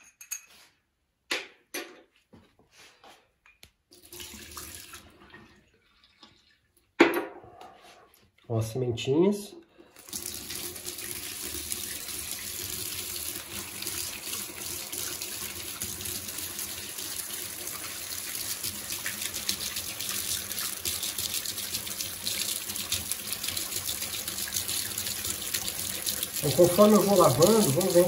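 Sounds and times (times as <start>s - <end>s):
tap water splashing into sink: 10.0s - 28.0s.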